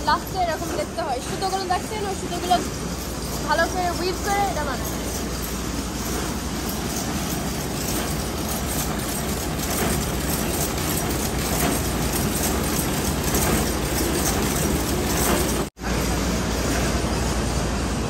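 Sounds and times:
continuous low hum: 0:00.0 - 0:18.0
weaving looms clattering: 0:00.0 - 0:18.0.

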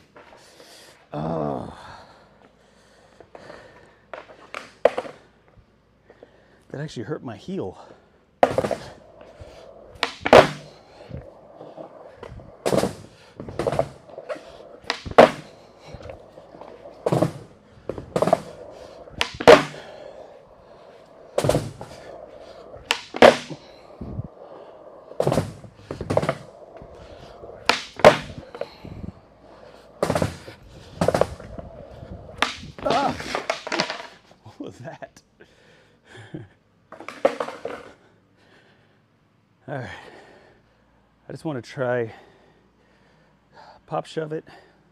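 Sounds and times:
skateboard wheels rolling on concrete: 0:00.0 - 0:06.4, 0:07.8 - 0:35.0, 0:36.8 - 0:38.2
skateboard clacks: 0:04.1 - 0:05.2, 0:08.4 - 0:34.2, 0:36.9 - 0:38.0.

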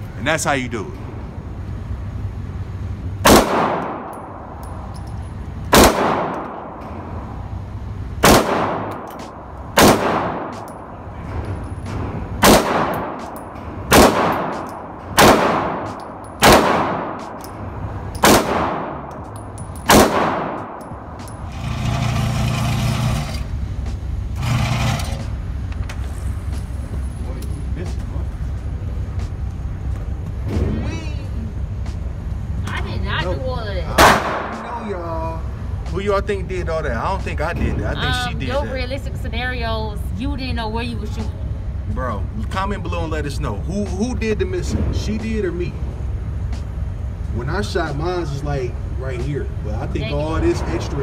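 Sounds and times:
pistol shots indoors: 0:03.2 - 0:04.6, 0:05.7 - 0:07.0, 0:08.2 - 0:10.9, 0:12.4 - 0:21.0, 0:34.0 - 0:34.6
target carrier motor humming: 0:17.0 - 0:51.0.

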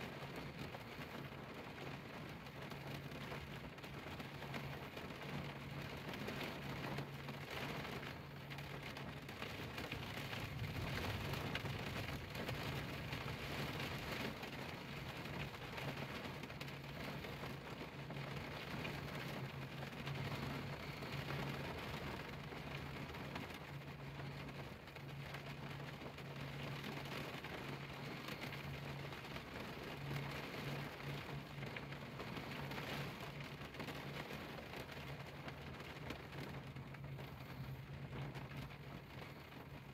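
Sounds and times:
low steady hum: 0:00.0 - 0:39.9
rain on a car windshield: 0:00.0 - 0:39.9.

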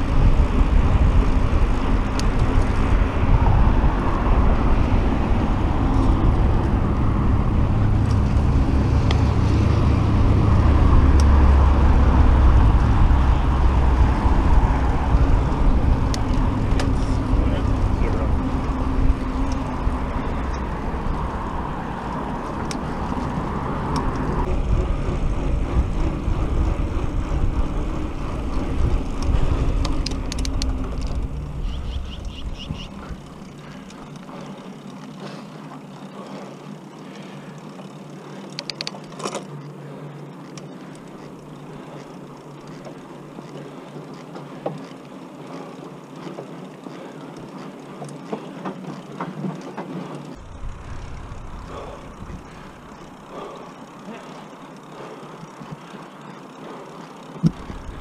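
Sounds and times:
rushing air rumble: 0:00.0 - 0:34.1, 0:50.4 - 0:53.8
bicycle tyres rolling on pavement: 0:00.0 - 0:58.0
faint clicks: 0:29.0 - 0:50.4.

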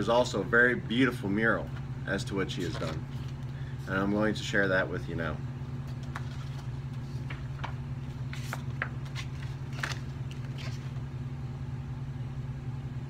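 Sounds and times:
steady low hum: 0:00.0 - 0:13.0
paper rustling: 0:02.4 - 0:03.6, 0:05.8 - 0:11.1.

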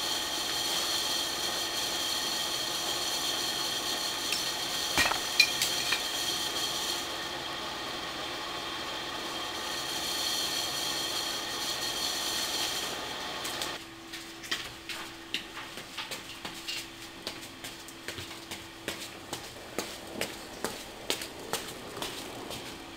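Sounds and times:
footsteps on tiled floor: 0:14.1 - 0:22.9.

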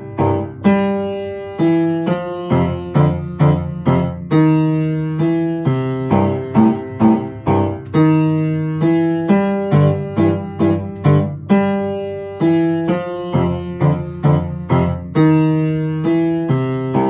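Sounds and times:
upright piano boogie: 0:00.0 - 0:17.0.

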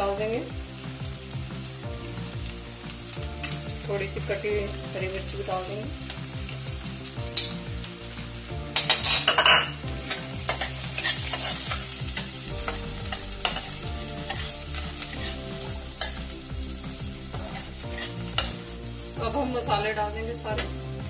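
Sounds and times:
onions sizzling in hot oil: 0:00.0 - 0:21.0
metal spatula scraping pan: 0:08.8 - 0:16.3, 0:17.3 - 0:18.6.

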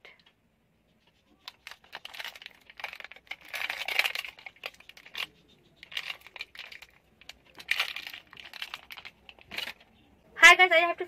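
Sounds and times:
plastic wrapper crinkling: 0:01.3 - 0:10.0.

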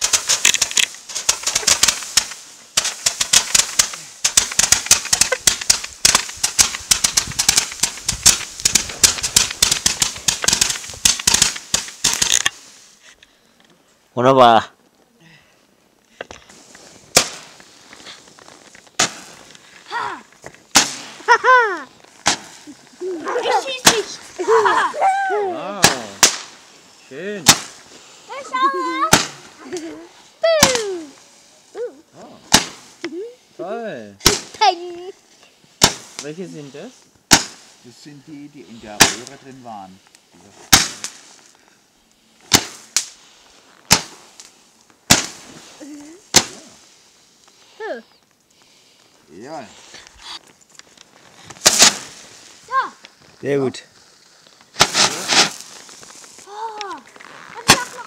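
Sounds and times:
firecracker bangs: 0:00.0 - 0:12.6, 0:16.6 - 0:17.6, 0:18.9 - 0:19.5, 0:20.7 - 0:21.6, 0:22.2 - 0:22.7, 0:23.4 - 0:24.9, 0:25.8 - 0:28.4, 0:29.0 - 0:29.6, 0:32.5 - 0:33.0, 0:34.2 - 0:34.7, 0:35.8 - 0:36.4, 0:37.3 - 0:38.0, 0:38.8 - 0:39.4, 0:40.6 - 0:41.4, 0:42.4 - 0:43.2, 0:43.9 - 0:44.4, 0:45.0 - 0:45.7, 0:46.3 - 0:46.7, 0:51.6 - 0:52.4, 0:54.7 - 0:55.8, 0:57.6 - 0:58.0.

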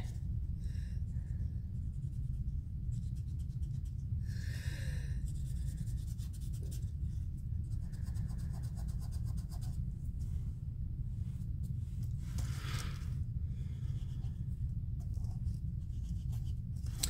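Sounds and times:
low hum: 0:00.0 - 0:17.0
chalk rubbing on paper: 0:01.8 - 0:04.0, 0:05.3 - 0:09.8, 0:15.2 - 0:16.7.

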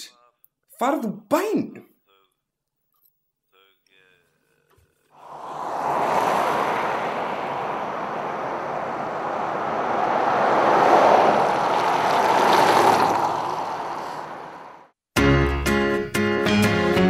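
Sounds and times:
outdoor rushing noise: 0:05.2 - 0:14.9.

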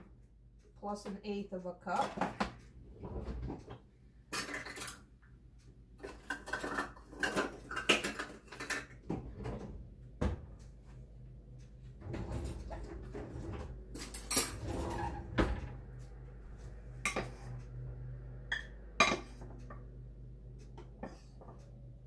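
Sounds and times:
kitchen utensils clattering: 0:04.3 - 0:05.0, 0:06.0 - 0:09.7, 0:12.0 - 0:15.7.

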